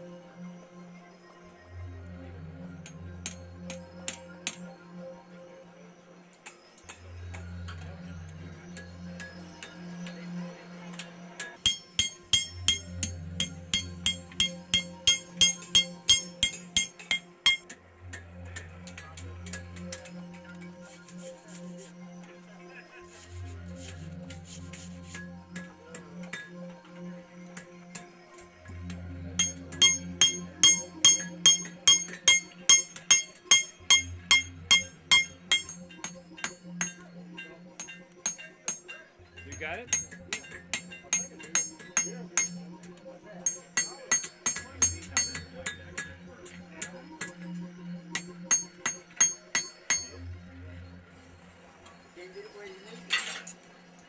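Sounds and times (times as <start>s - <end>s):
hammer striking steel on anvil: 2.8s - 4.6s, 11.4s - 17.8s, 29.4s - 42.8s, 43.4s - 47.4s, 48.2s - 50.3s.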